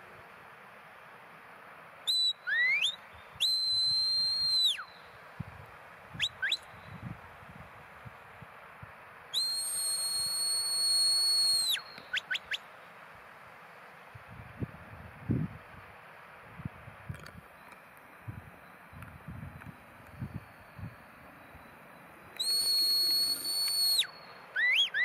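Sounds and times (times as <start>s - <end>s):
whistle commands: 2.1s - 5.0s, 6.2s - 6.8s, 9.4s - 12.6s, 22.4s - 25.0s.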